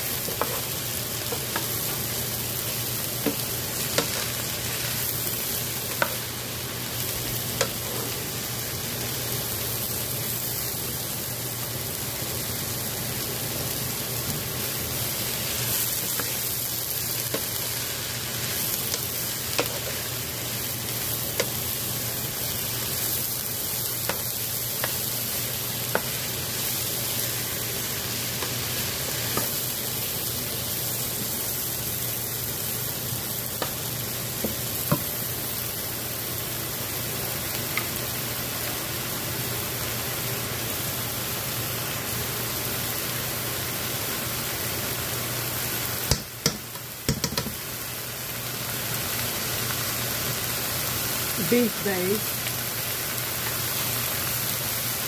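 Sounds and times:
vegetables sizzling in oil: 0:00.0 - 0:55.0
wooden spoon tapping and scraping pan: 0:00.2 - 0:02.1, 0:03.2 - 0:04.2, 0:18.9 - 0:19.9, 0:46.1 - 0:47.6.

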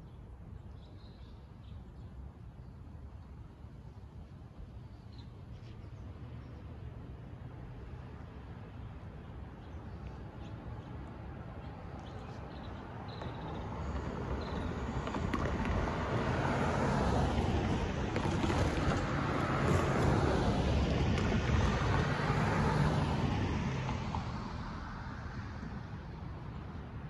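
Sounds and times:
car driving past: 0:13.6 - 0:25.1.

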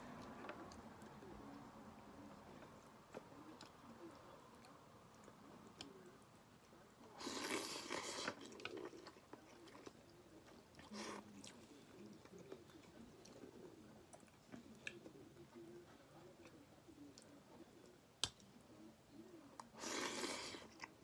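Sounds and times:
slurping soup from spoon: 0:07.2 - 0:09.0, 0:19.8 - 0:20.8
person chewing: 0:07.2 - 0:15.2.

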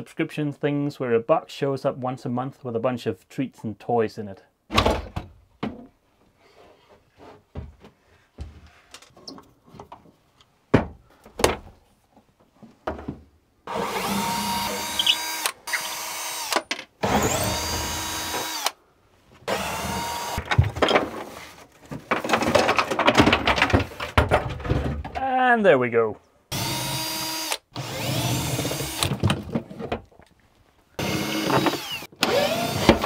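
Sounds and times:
power drill running: 0:13.7 - 0:18.8, 0:19.5 - 0:20.4, 0:26.5 - 0:29.1, 0:31.0 - 0:33.0.

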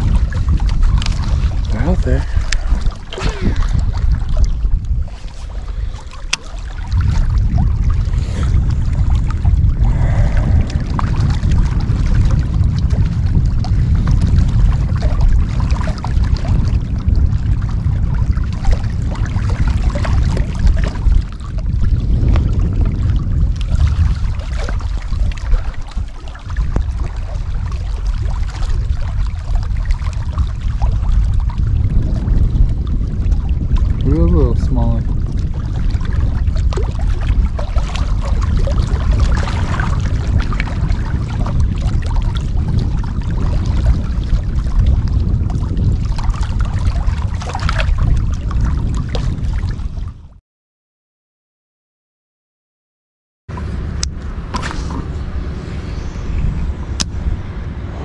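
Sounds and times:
waves lapping against rocks: 0:00.0 - 0:50.0
wind buffeting microphone: 0:00.0 - 0:50.4, 0:53.5 - 0:58.0.

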